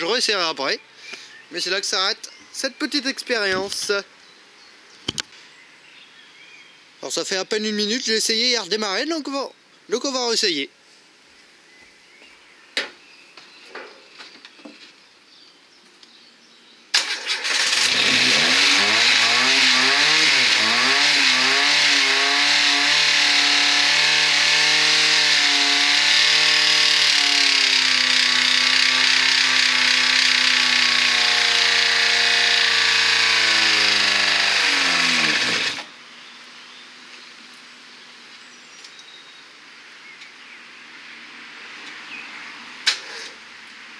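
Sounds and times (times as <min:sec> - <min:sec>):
car engine running loudly: 0:17.4 - 0:35.9.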